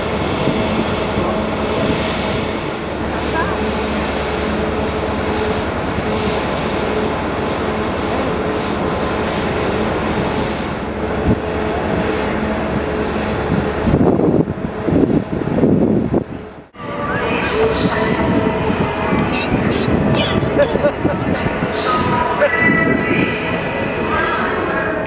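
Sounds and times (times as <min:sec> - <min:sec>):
irregular low rumbles: 0:00.0 - 0:25.0
ship machinery roar: 0:00.0 - 0:25.0.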